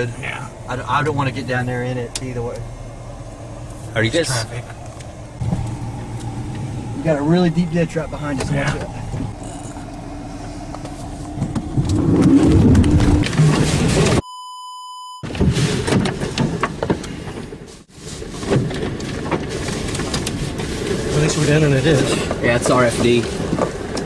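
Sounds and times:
wind: 0.0s - 24.0s
censor bleep: 14.2s - 15.3s.

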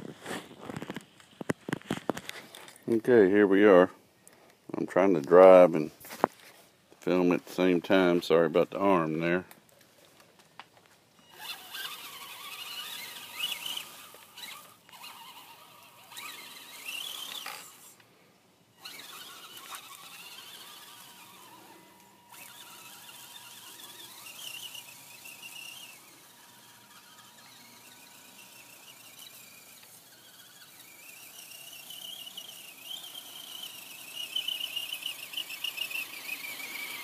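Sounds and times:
toy truck electric motor whining: 11.2s - 18.0s, 18.7s - 37.0s.

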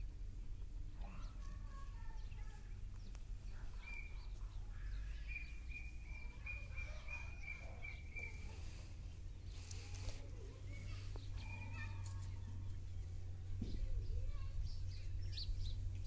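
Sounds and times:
fainter lower bird calls: 0.9s - 13.2s
bird high chirps: 1.0s - 13.2s, 13.8s - 15.9s.

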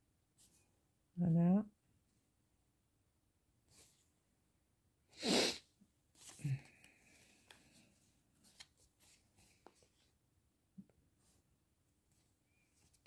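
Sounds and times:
person sneezing: 5.2s - 5.7s
soft rustling and clicks: 6.2s - 10.1s.

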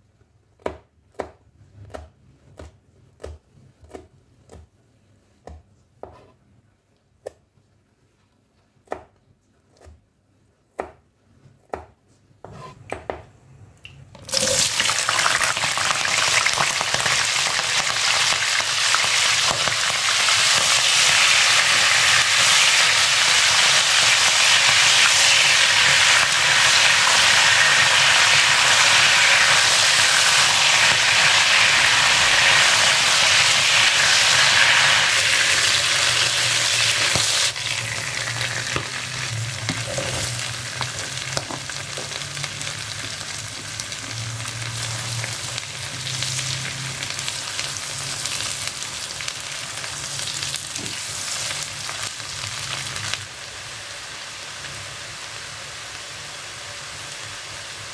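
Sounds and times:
food sizzling in hot oil: 14.2s - 57.9s.

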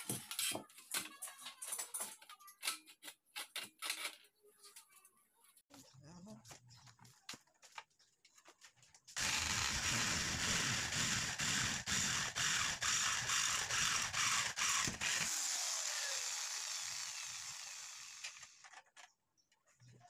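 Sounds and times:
electric drill boring through metal: 9.2s - 18.7s.

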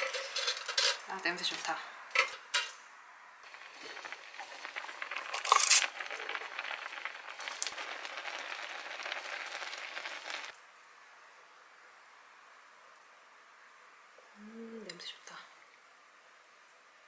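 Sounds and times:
sauce simmering in a frying pan: 3.4s - 10.6s.

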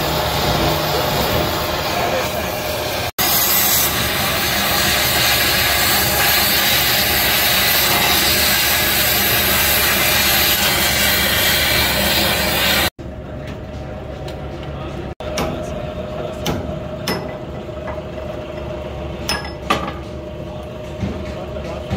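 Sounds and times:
cutting torch hissing: 0.0s - 12.9s.

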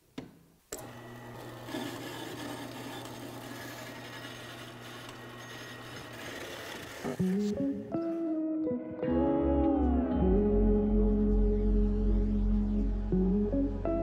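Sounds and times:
bandsaw cutting metal: 0.8s - 7.6s.

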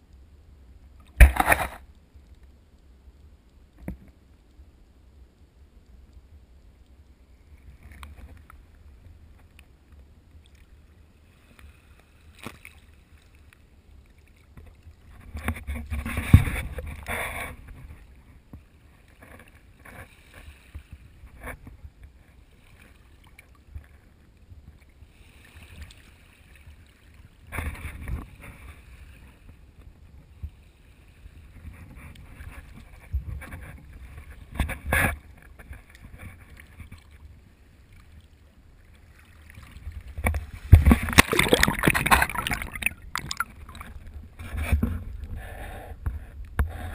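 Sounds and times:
water lapping and splashing: 10.3s - 45.4s.

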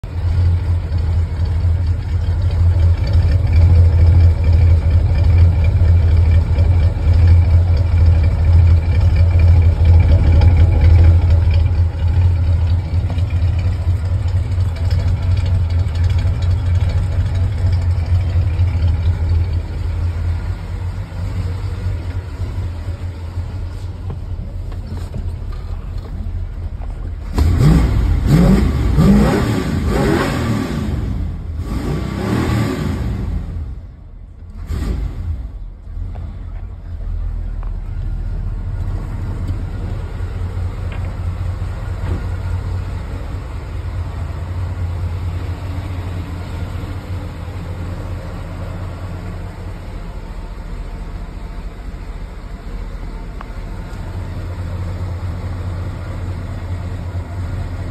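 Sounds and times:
car engine idling: 0.0s - 57.9s
engine revving: 27.2s - 33.8s, 34.5s - 35.6s.

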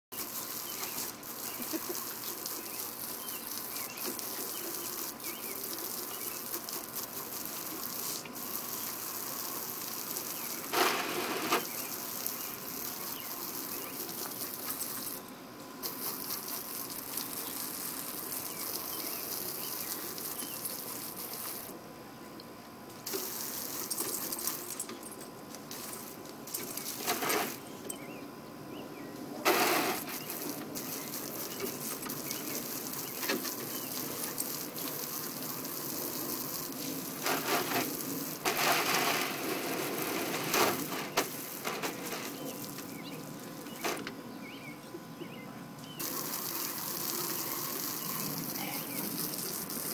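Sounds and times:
hose nozzle spray hissing: 4.2s - 15.2s, 23.0s - 24.8s, 29.5s - 42.9s, 46.0s - 49.9s.

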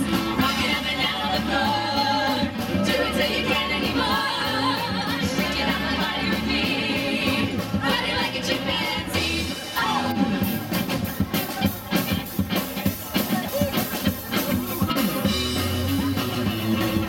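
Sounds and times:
women singing together: 0.0s - 10.5s
bass line: 0.0s - 17.0s
drums: 0.0s - 17.0s
electric guitar: 9.4s - 17.0s.

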